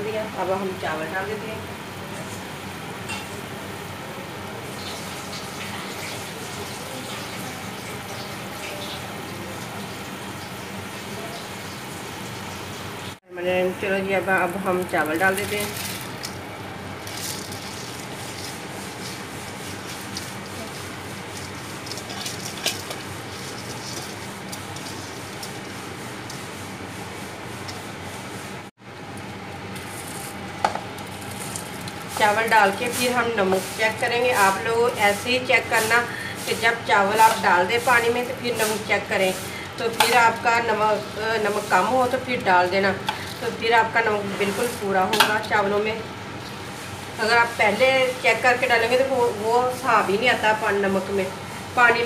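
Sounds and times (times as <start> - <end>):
water boiling in a pot: 0.4 - 52.0.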